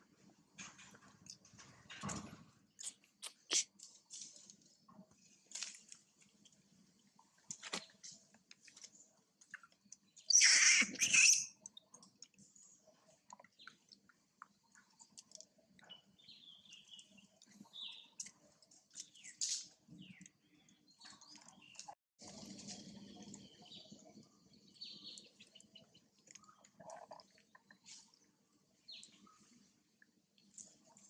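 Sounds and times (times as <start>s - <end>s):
small clicks and rustles: 0.5s - 10.2s, 11.6s - 15.9s, 17.0s - 23.5s, 28.9s - 31.0s.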